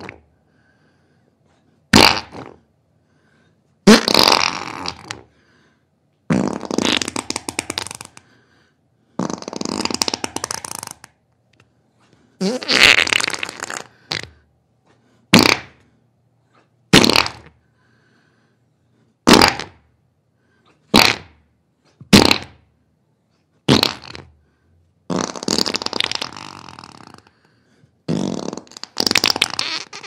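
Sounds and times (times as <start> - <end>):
farting bursts: 0.0 - 0.2, 1.9 - 2.7, 3.8 - 5.3, 6.3 - 8.2, 9.1 - 11.1, 12.4 - 14.4, 15.3 - 15.8, 16.9 - 17.6, 19.2 - 19.9, 20.9 - 21.4, 22.1 - 22.7, 23.7 - 24.4, 25.1 - 27.3, 28.1 - 30.0.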